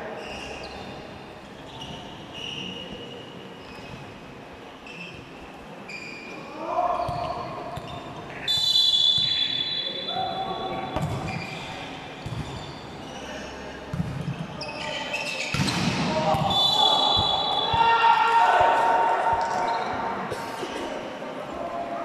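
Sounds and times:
sneakers squeaking: 0.1s - 18.1s, 19.3s - 20.2s
referee's whistle: 8.4s - 10.2s, 16.4s - 17.9s.

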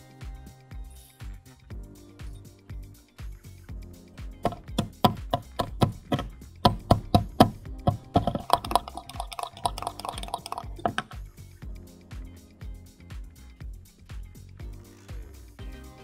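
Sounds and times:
whisk clicking against glass bowl: 4.5s - 11.1s.

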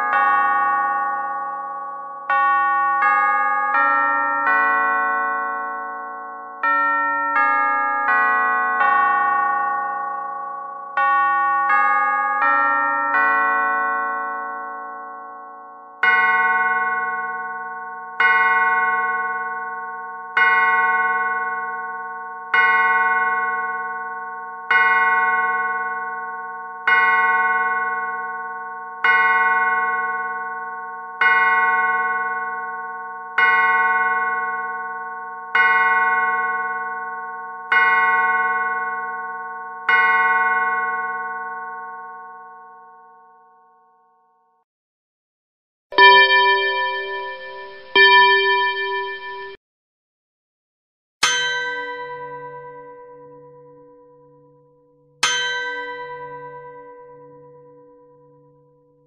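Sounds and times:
clock chime tune: 0.0s - 25.6s, 45.9s - 49.6s
clock striking the hour: 46.0s - 49.6s.

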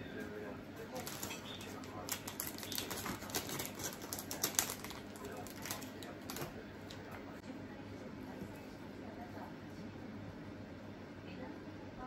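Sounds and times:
plastic crinkling: 0.9s - 7.0s.

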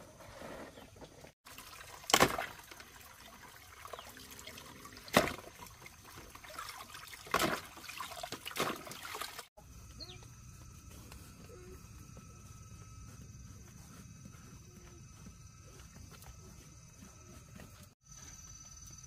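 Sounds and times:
water splashing and pouring: 1.4s - 9.5s
water trickling: 1.4s - 9.5s.

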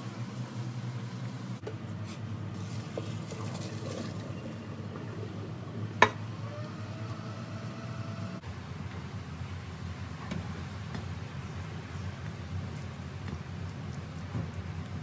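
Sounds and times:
water pouring into colander: 3.1s - 4.6s.

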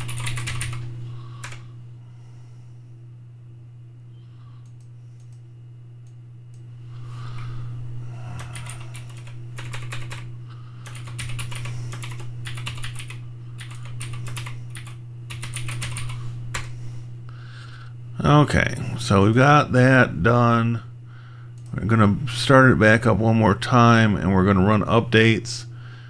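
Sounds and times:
computer keyboard typing: 0.0s - 0.8s, 8.4s - 16.7s.

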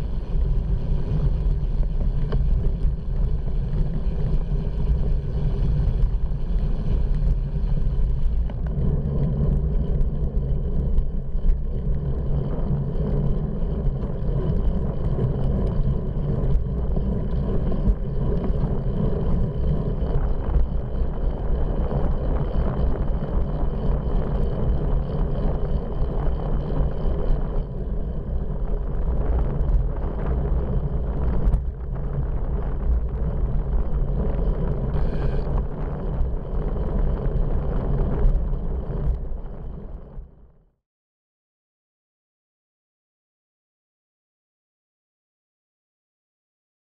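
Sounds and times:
wind buffeting microphone: 0.0s - 40.4s
road noise: 27.6s - 39.9s.

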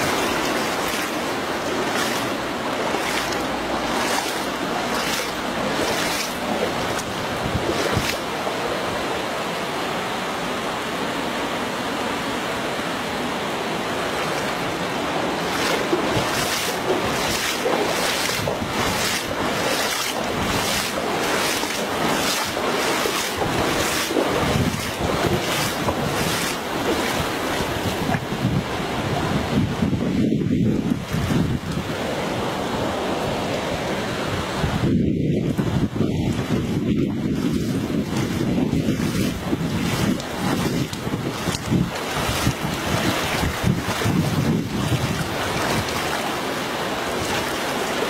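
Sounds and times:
short splashes: 0.0s - 8.4s, 15.3s - 28.3s, 37.3s - 48.0s
wind buffeting microphone: 0.0s - 8.4s, 15.3s - 33.0s, 33.7s - 48.0s
rushing floodwater: 0.0s - 48.0s.

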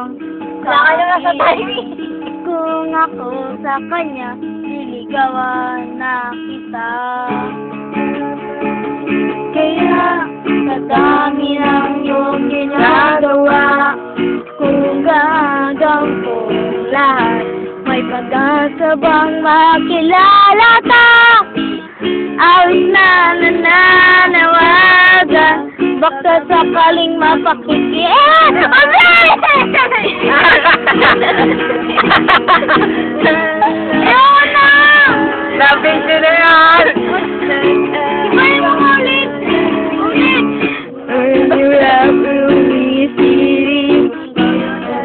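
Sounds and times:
acoustic guitar strumming: 0.0s - 45.0s
person singing: 9.6s - 21.5s, 22.4s - 29.4s, 32.6s - 45.0s.

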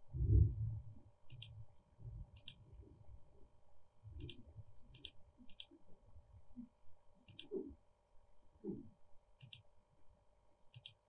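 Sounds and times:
computer mouse clicks: 1.3s - 1.6s, 2.3s - 2.7s, 4.2s - 5.8s, 7.2s - 7.7s, 9.4s - 9.7s, 10.7s - 11.0s.

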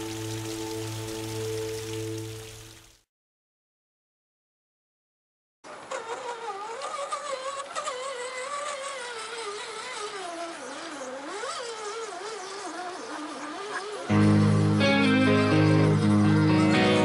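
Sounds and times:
mosquito whining: 5.9s - 17.0s.

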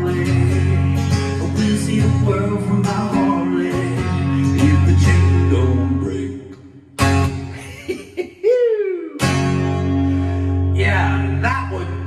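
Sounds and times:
man singing: 0.0s - 6.7s, 10.7s - 12.0s
acoustic guitar strumming: 0.0s - 7.6s, 9.2s - 12.0s.

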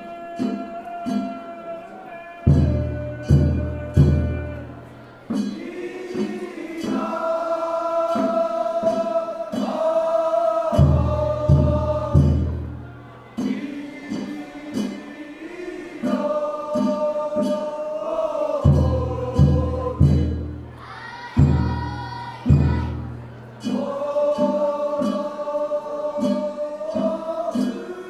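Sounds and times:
chorus of men singing: 0.0s - 28.0s
large drum strokes: 2.5s - 10.0s, 10.7s - 17.7s, 18.6s - 25.3s.

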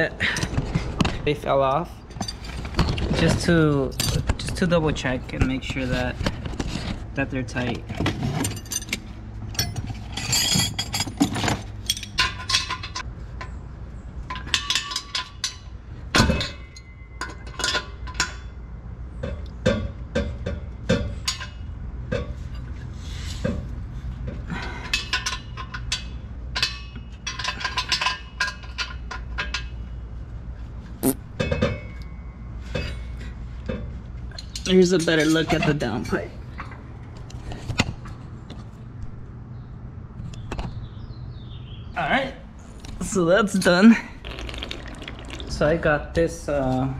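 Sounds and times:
wrenches clinking on metal bolts: 7.9s - 13.1s, 14.2s - 18.6s, 24.6s - 29.8s, 34.3s - 36.8s.

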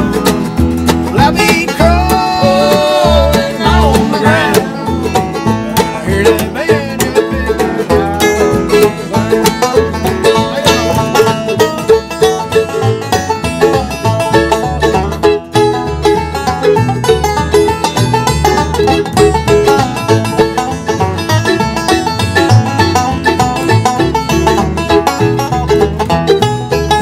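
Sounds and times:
bluegrass band playing: 0.0s - 27.0s
fast banjo picking: 0.0s - 27.0s
person singing: 1.1s - 8.8s.

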